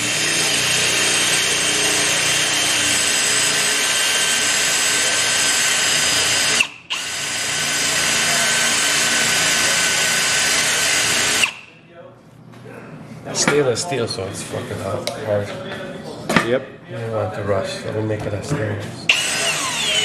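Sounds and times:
drill boring through metal: 0.0s - 11.7s, 19.1s - 20.0s.

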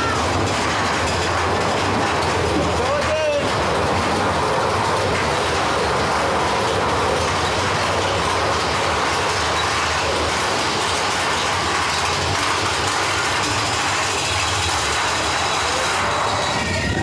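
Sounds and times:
roller coaster wheels rumbling on track: 0.0s - 17.0s.

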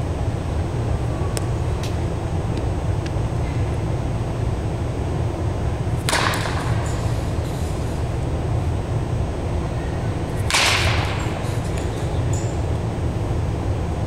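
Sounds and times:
steady low hum: 0.0s - 14.0s
baseball bat cracking balls: 5.9s - 8.2s, 10.3s - 12.7s.

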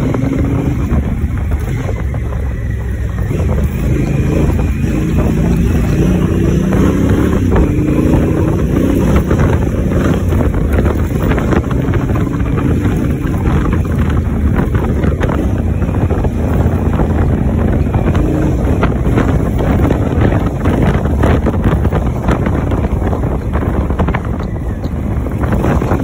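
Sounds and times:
knocks and rattles: 0.0s - 26.0s
motorcycle engine running: 0.0s - 26.0s
wind on microphone: 0.0s - 26.0s.

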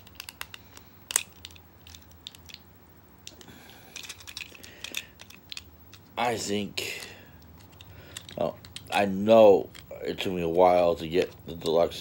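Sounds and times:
plastic toy clicks: 0.0s - 2.6s.

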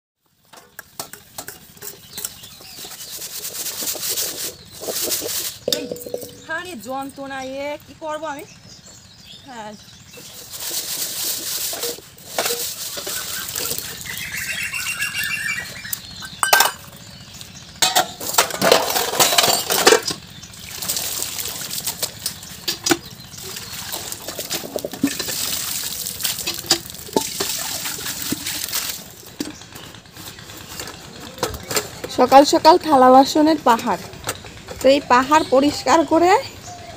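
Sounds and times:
water splashing and running: 2.5s - 6.4s, 10.2s - 15.2s, 20.6s - 29.6s
steel dishes clinking: 4.8s - 6.5s, 16.3s - 16.9s.

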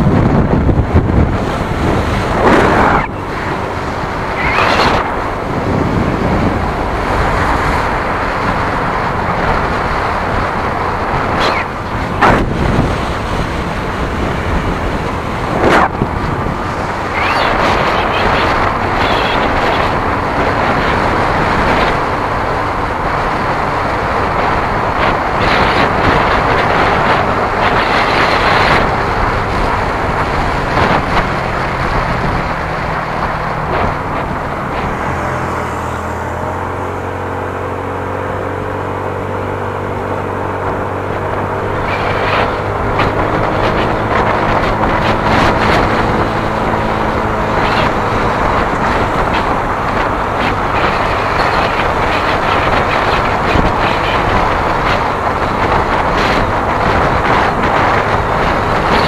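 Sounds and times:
low engine hum: 0.0s - 59.0s
wind and road noise: 0.0s - 59.0s.

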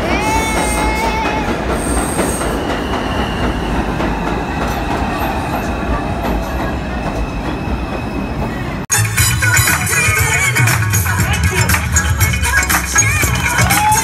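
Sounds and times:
subway train rumbling past: 0.0s - 10.5s.

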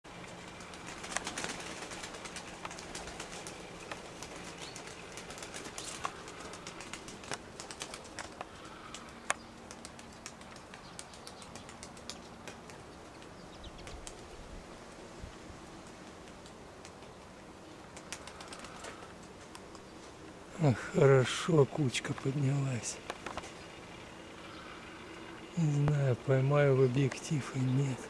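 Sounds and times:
faint steady hum: 0.1s - 28.0s
pigeon wing claps: 0.6s - 14.2s, 17.9s - 19.8s, 23.0s - 23.5s.

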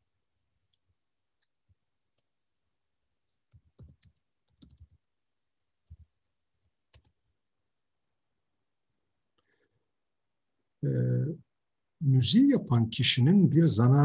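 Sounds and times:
faint clicks and soft thumps: 5.8s - 7.4s.

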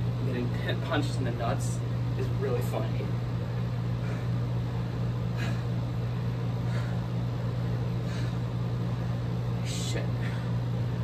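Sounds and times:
steady low hum: 0.0s - 11.0s
heavy breathing: 3.9s - 4.6s, 5.2s - 5.9s, 6.5s - 9.3s, 10.1s - 10.8s.

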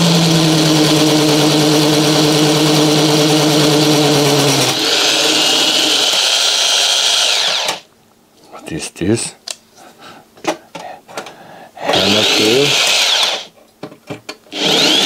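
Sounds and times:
electric drill drilling metal: 0.0s - 7.9s, 11.9s - 13.5s, 14.5s - 15.0s.

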